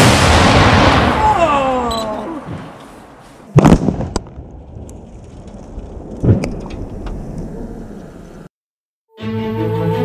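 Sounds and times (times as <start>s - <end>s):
sharp explosive bang: 0.0s - 1.4s, 3.6s - 4.5s
falling debris impacts: 0.0s - 2.8s
low rumble: 4.2s - 8.5s.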